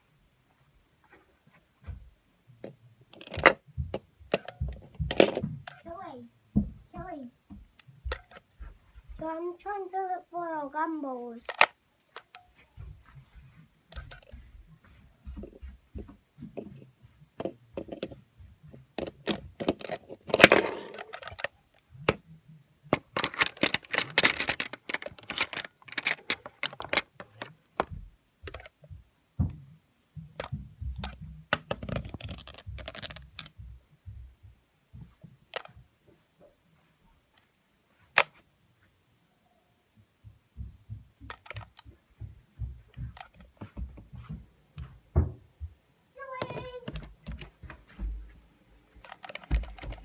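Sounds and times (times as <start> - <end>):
toy clicks and knocks: 3.1 - 6.0, 7.8 - 8.5, 11.4 - 12.6, 13.9 - 14.5, 19.0 - 22.2, 22.9 - 28.9, 30.4 - 33.6, 35.5 - 35.8, 41.2 - 42.0, 42.9 - 43.5, 49.0 - 50.0
rustling: 11.4 - 33.9, 46.2 - 50.0.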